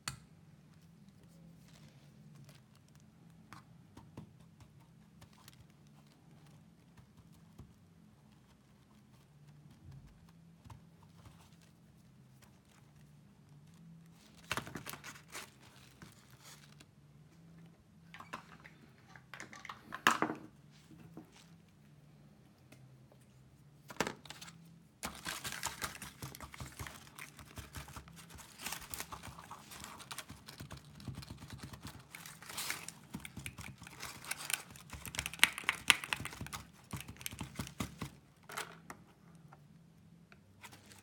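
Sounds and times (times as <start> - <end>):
plastic wrapper crinkling: 24.2 - 38.2
plastic toys tapping and clicking: 25.0 - 38.9.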